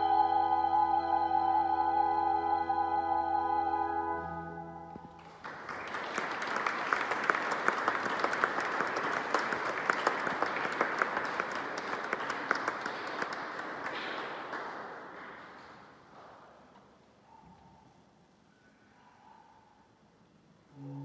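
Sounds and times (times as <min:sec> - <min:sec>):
audience applause: 0:05.2 - 0:16.0.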